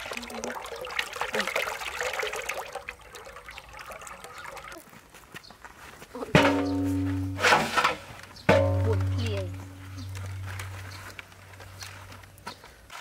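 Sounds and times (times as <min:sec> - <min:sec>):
liquid pouring into broth: 0:00.0 - 0:04.8.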